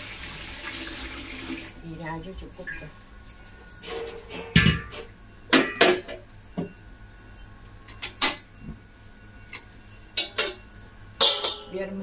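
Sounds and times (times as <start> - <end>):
metal cookware clanking: 3.8 - 6.2, 10.2 - 10.6, 11.2 - 12.0.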